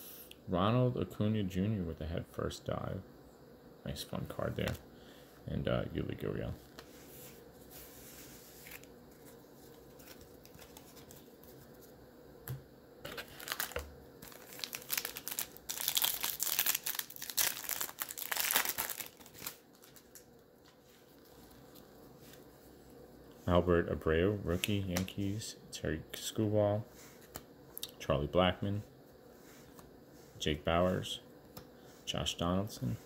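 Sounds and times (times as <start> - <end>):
wrapper tearing and crinkling: 13.1 - 20.3.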